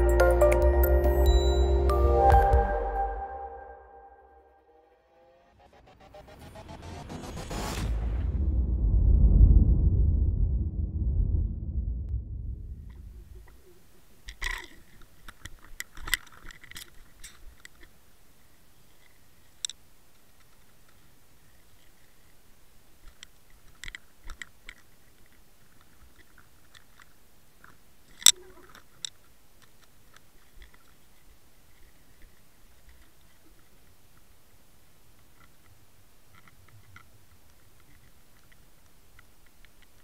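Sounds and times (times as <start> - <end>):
faint steady hiss: 12.5 - 40.0.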